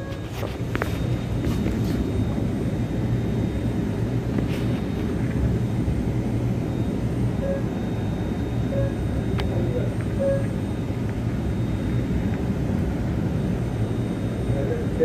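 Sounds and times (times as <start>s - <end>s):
train carriage drone: 0.0s - 15.0s.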